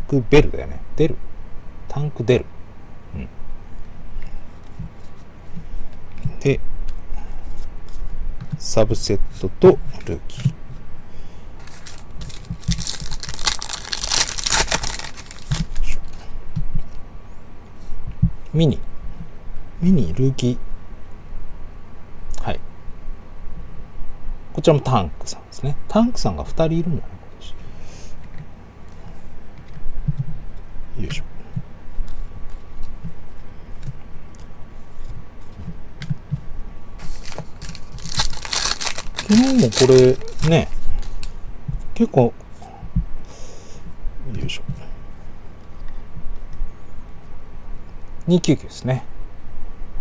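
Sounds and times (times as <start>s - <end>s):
foil wrapper tearing and crinkling: 11.6s - 16.1s, 37.0s - 41.3s
cards rustling: 11.6s - 16.2s, 37.0s - 41.4s.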